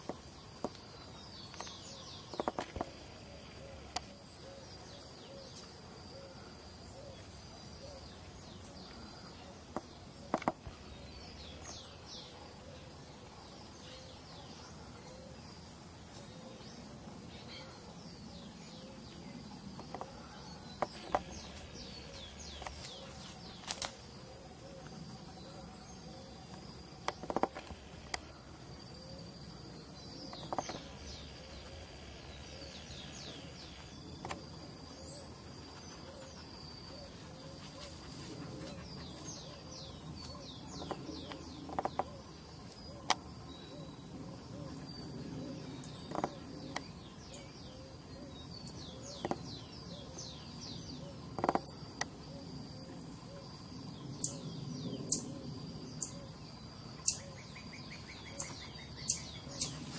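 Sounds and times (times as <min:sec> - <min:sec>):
marmosets chirping: 0:57.0 - 0:59.9.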